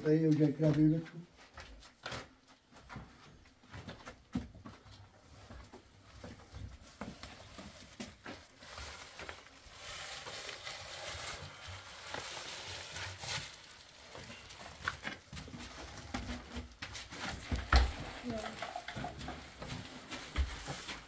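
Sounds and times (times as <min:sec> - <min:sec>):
plastic film crinkling: 0:06.9 - 0:21.0.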